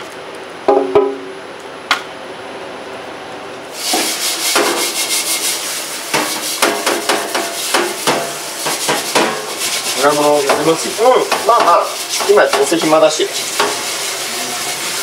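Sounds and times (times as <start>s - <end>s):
scrubbing metal stockpot: 3.8s - 15.0s.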